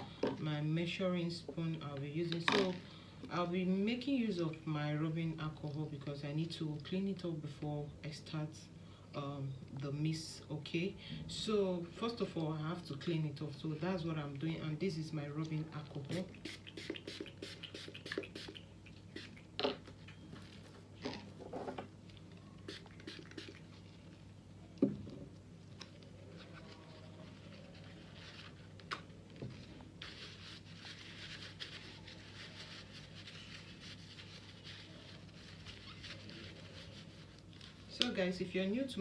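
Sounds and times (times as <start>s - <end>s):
paper towel wiping rustle: 29.6s - 38.0s.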